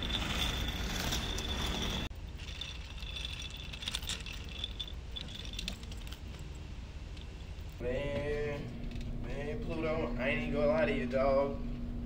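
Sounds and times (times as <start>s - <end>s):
suitcase wheels rolling on concrete: 0.0s - 7.8s.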